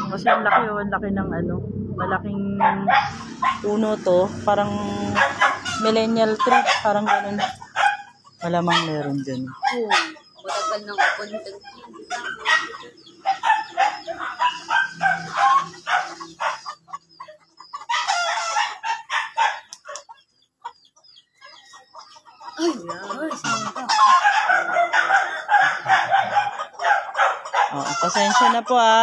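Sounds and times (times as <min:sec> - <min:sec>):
chickens clucking: 0:00.0 - 0:29.0
rooster crowing: 0:04.7 - 0:16.8, 0:17.9 - 0:19.7, 0:22.8 - 0:28.8.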